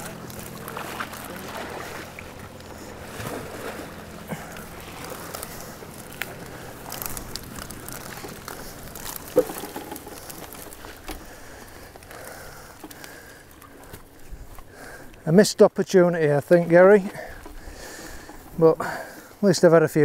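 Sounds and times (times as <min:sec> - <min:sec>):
mesh net rustling: 0:03.1 - 0:11.4.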